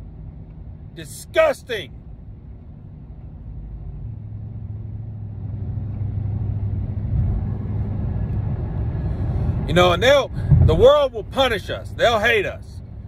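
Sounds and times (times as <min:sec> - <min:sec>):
vehicle rumble: 0:00.0 - 0:13.0.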